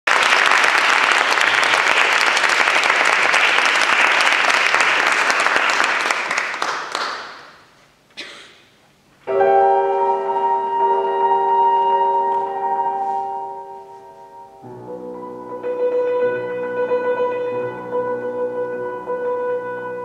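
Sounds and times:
audience applauding: 0.0 - 7.7
grand piano chord: 9.2 - 20.0.

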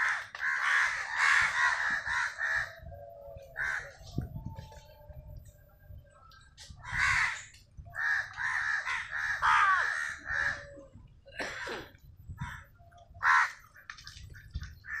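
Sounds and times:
crows cawing: 0.0 - 2.8, 3.6 - 4.0, 6.8 - 10.8, 12.4 - 13.7.

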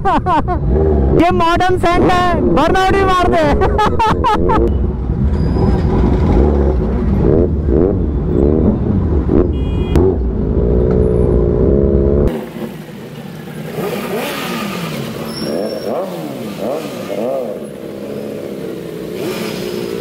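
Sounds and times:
motorcycle engines revving: 0.0 - 20.0.

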